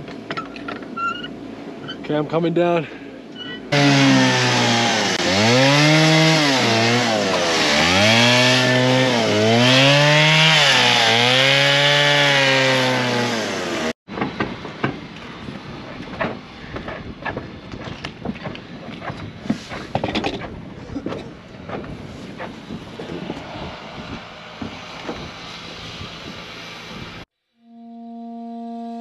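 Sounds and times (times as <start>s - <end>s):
chainsaw cutting log: 3.7s - 14.0s, 16.1s - 26.1s.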